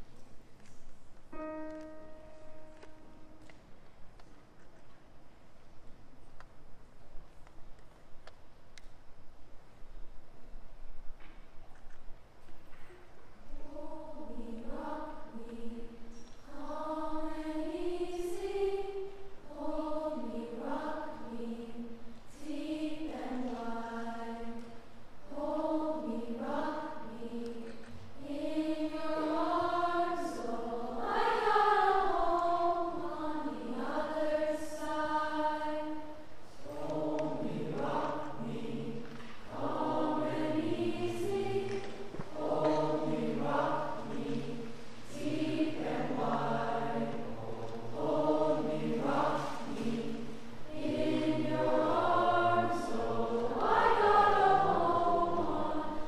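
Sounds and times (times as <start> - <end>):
choir singing: 13.5 - 56.0.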